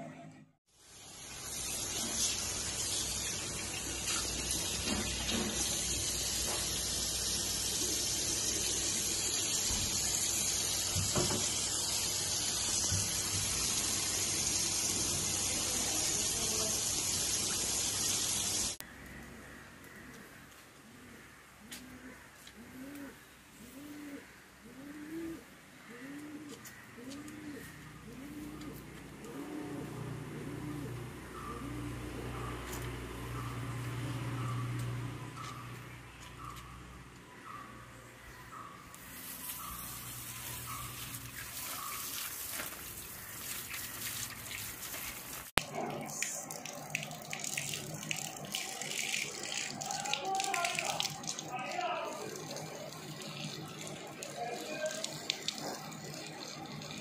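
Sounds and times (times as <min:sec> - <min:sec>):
water splashing into metal sink: 0:01.3 - 0:06.9
dove cooing: 0:20.8 - 0:35.8
tap water splashing on hands: 0:41.2 - 0:51.5.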